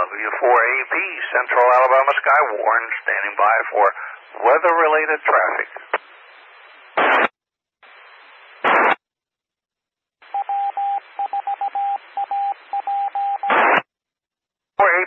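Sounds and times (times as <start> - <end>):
radio carrier hiss: 0.0 - 7.3, 7.9 - 9.0, 13.5 - 13.8
squelch static bursts: 0.0 - 9.0, 10.2 - 13.9
morse code beep: 10.3 - 13.6.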